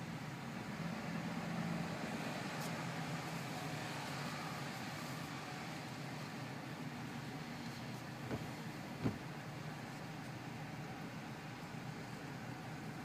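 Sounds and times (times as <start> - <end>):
car engine hum: 0.0 - 13.0
tyre noise on wet road: 7.0 - 10.6.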